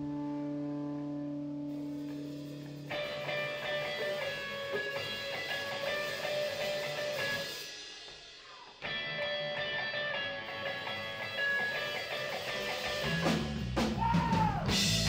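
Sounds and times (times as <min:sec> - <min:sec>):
electric guitars chiming: 0:01.7 - 0:07.9, 0:08.8 - 0:13.6
light drums: 0:11.9 - 0:15.0.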